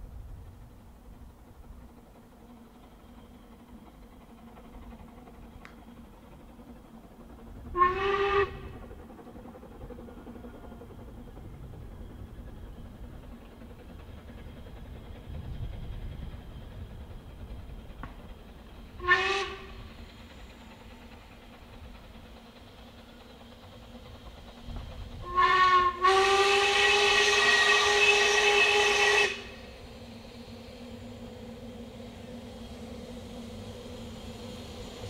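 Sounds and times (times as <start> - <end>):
steam locomotive whistle: 7.7 - 8.9, 19.0 - 19.9, 25.2 - 29.7.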